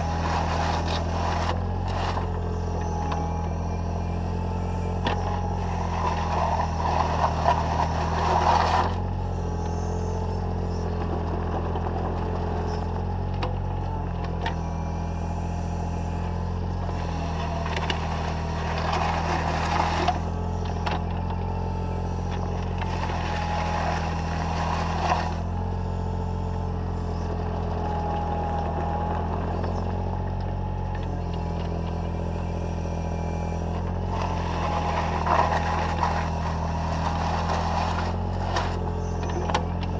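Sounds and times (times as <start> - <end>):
excavator diesel engine running: 0.0 - 39.9
hydraulic whine: 0.0 - 39.9
bucket scraping gravel: 34.1 - 38.8.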